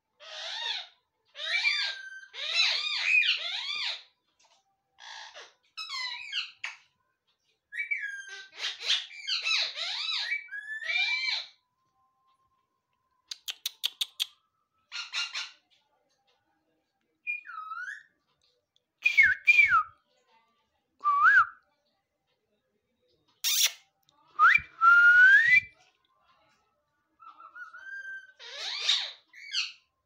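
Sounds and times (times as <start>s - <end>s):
parakeet clicks: 13.3s - 14.4s.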